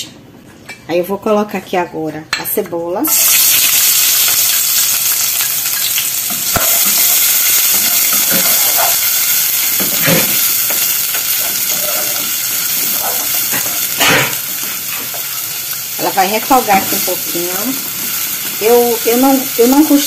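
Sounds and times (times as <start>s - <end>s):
onion sizzling in oil: 3.0s - 20.0s
wooden spoon scraping pan: 11.4s - 12.3s.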